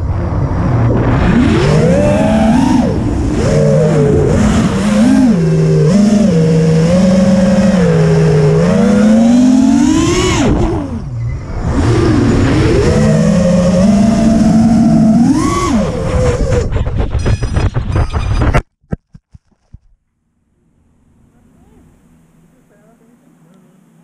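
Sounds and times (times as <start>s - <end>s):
drone motors whining: 0.0s - 18.5s.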